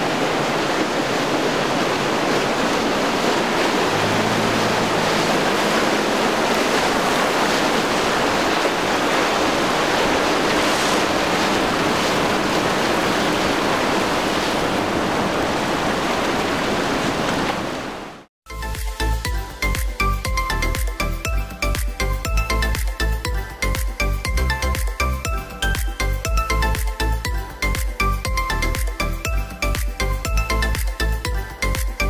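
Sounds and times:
wind on microphone: 0.0s - 18.1s
waves and churning water: 0.0s - 32.0s
low engine hum: 3.1s - 8.6s
music: 18.5s - 32.0s.

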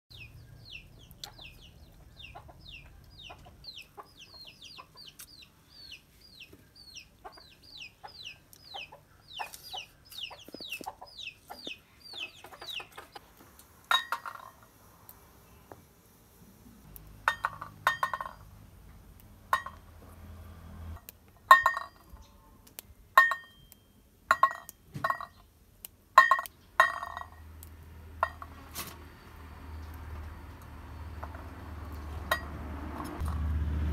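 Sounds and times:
steel bowls and pots clinking: 13.9s - 14.6s, 17.2s - 18.4s, 19.5s - 19.8s, 21.5s - 22.2s, 23.2s - 23.7s, 28.2s - 28.6s.

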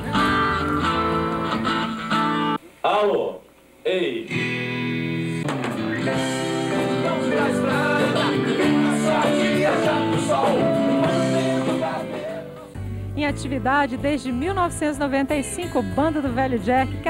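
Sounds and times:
acoustic bass: 0.0s - 2.6s, 4.4s - 17.0s
acoustic guitars: 0.0s - 2.6s, 4.3s - 17.0s
drums: 0.0s - 2.6s, 4.3s - 14.1s
man singing: 6.6s - 12.7s.

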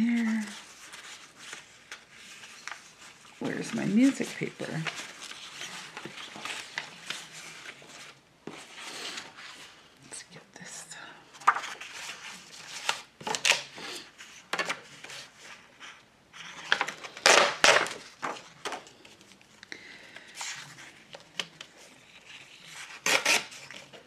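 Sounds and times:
paper rustling and crinkling: 0.0s - 10.0s, 11.3s - 24.0s.

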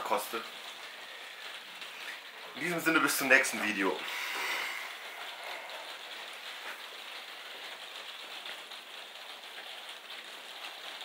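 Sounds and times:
steady rain falling: 0.0s - 11.0s.

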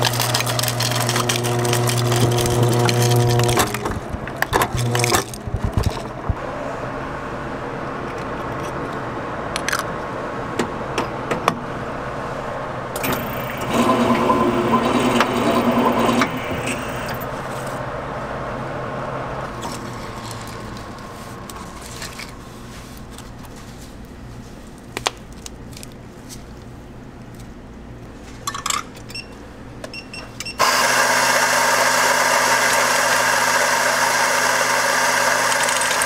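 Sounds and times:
can-sealing machine motor whirring: 0.0s - 6.0s, 13.0s - 17.2s, 30.6s - 36.0s
steady machine hum: 0.0s - 8.0s, 11.7s - 23.4s.

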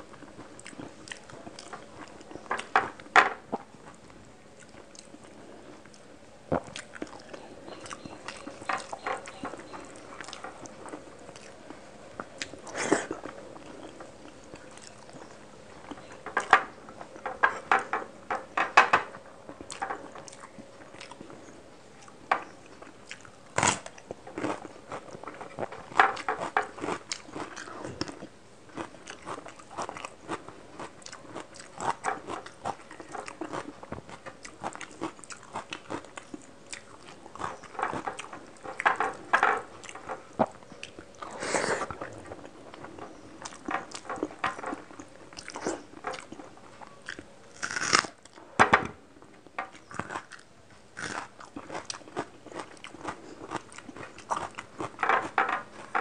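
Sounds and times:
wet chewing: 0.0s - 18.5s, 19.4s - 48.4s, 49.6s - 56.0s
crisp crunches of raw onion: 47.2s - 48.2s.

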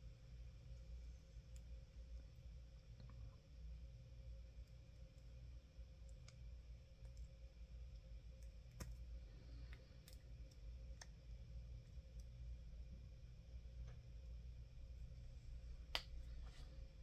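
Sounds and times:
low room hum: 0.0s - 17.0s
faint small clicks: 6.0s - 7.3s.

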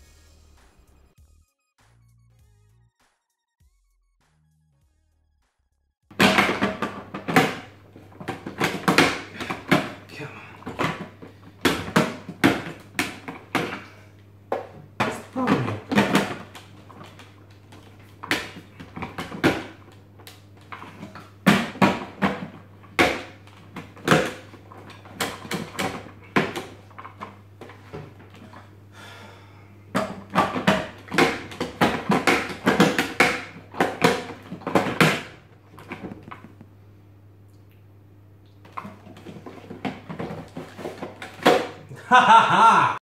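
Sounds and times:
plastic bowl clunking and rattling: 6.1s - 10.0s, 10.6s - 13.9s, 14.5s - 19.9s, 20.6s - 28.6s, 29.9s - 36.6s, 38.7s - 41.8s.

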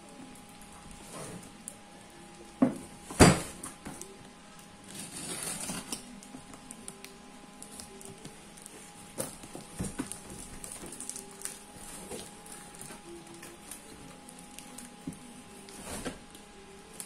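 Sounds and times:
knocks on cardboard parcel: 2.6s - 3.6s
small clicks and scrapes: 3.9s - 9.4s
rustle of tape and cardboard: 4.8s - 6.2s.

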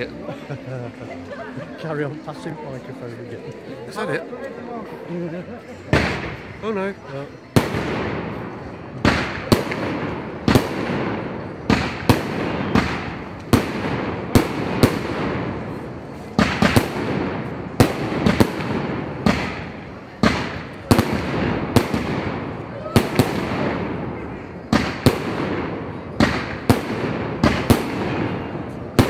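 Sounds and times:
fireworks bangs with echo: 5.9s - 6.7s, 7.5s - 29.0s.

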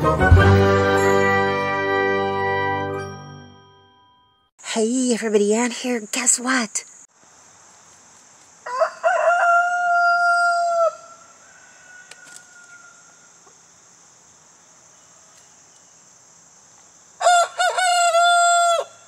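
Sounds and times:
young rooster crowing: 8.6s - 13.4s, 17.2s - 19.0s.

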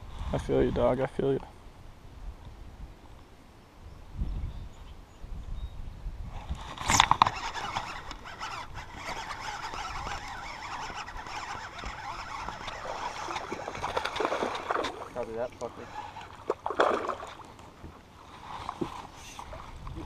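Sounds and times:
fishing reel clicks and rustles: 6.5s - 17.6s.

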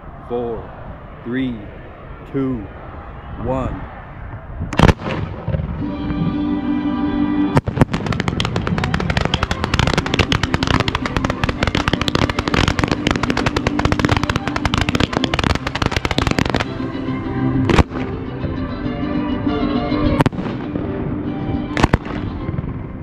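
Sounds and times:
loud firework bang: 4.7s - 5.9s, 7.6s - 16.7s, 21.7s - 22.6s
fireworks cracking and banging: 4.8s - 6.3s, 7.6s - 16.8s, 17.7s - 18.1s, 20.2s - 20.9s, 21.7s - 22.8s.

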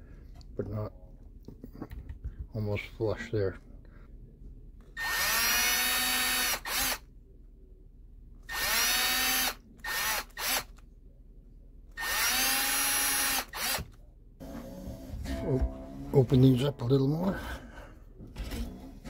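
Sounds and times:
electric drill whine: 5.0s - 7.0s, 8.5s - 10.6s, 12.0s - 13.8s
drill trigger blips: 12.0s - 13.9s.

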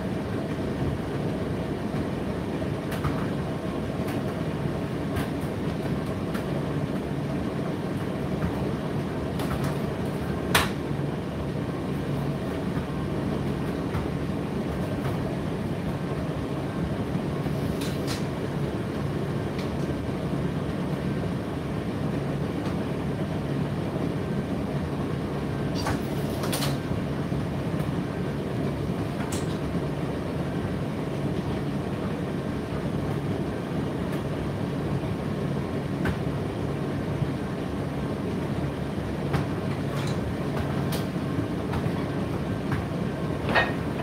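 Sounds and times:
tumble dryer humming: 0.0s - 26.0s, 26.7s - 44.0s.

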